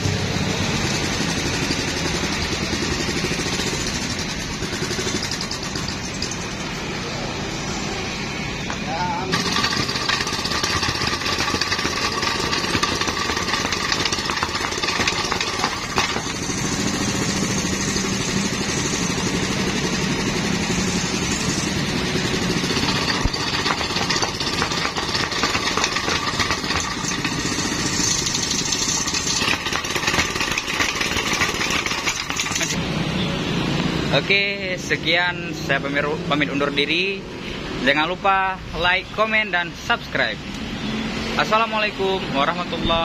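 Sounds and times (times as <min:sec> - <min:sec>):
small petrol engine running: 0:00.0 - 0:07.3, 0:09.1 - 0:32.8.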